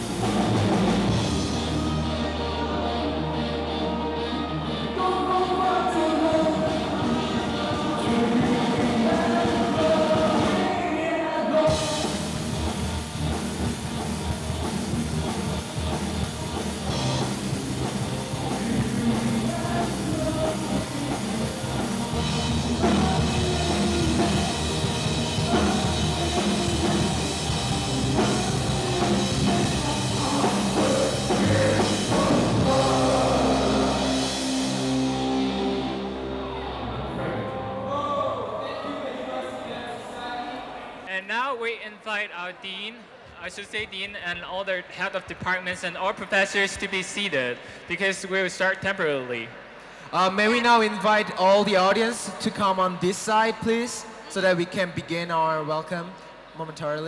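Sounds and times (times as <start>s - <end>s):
drum kit: 0.0s - 2.2s, 6.3s - 10.9s, 11.7s - 36.6s
bass guitar: 0.0s - 10.6s, 11.7s - 38.4s
electric guitars: 0.0s - 10.9s, 11.7s - 38.5s
keyboard: 0.0s - 40.2s
person singing: 1.4s - 12.4s, 17.8s - 39.0s.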